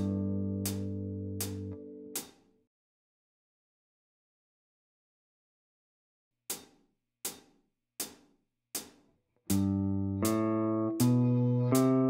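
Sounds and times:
electric guitar playing a scale: 0:00.0 - 0:02.1, 0:09.5 - 0:12.0.

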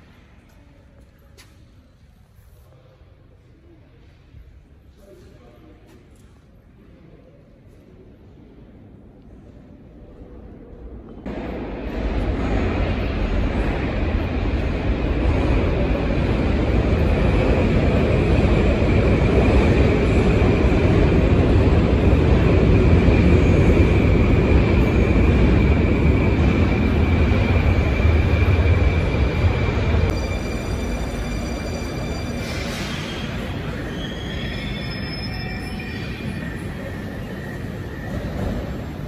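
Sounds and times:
metro train rumble: 0:07.9 - 0:39.0
faint high whine: 0:26.3 - 0:39.0.

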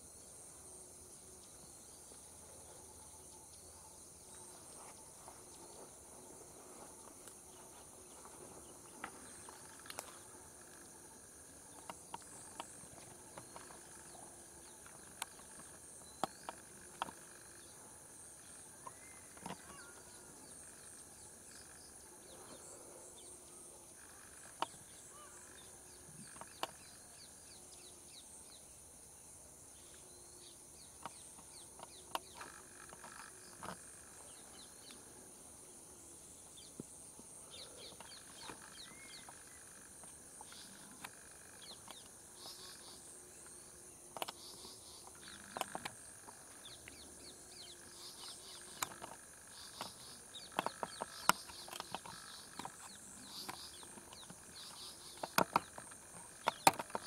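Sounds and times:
sharp clicks: 0:48.6 - 0:57.0.

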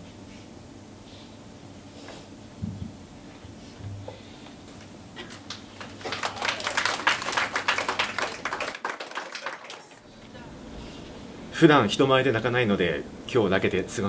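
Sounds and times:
audience clapping: 0:05.2 - 0:10.1.

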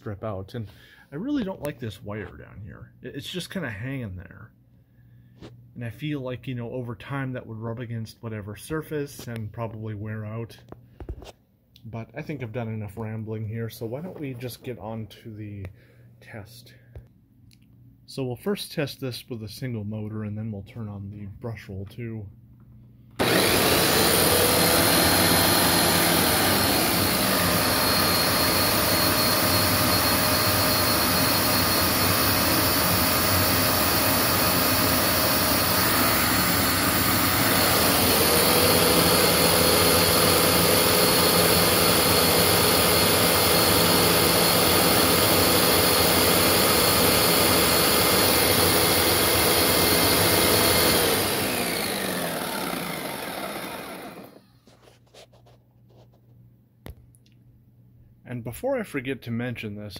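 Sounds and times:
vacuum cleaner motor running: 0:23.2 - 0:54.4.

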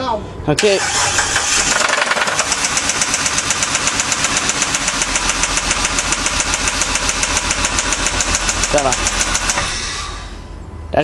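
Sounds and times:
engine idling with rapid knock: 0:01.1 - 0:09.7.

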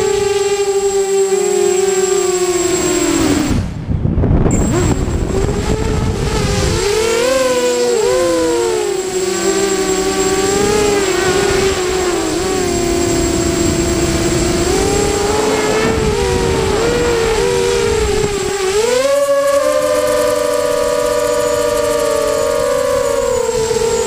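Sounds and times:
model aircraft motor whine: 0:00.0 - 0:03.7, 0:04.5 - 0:24.0.

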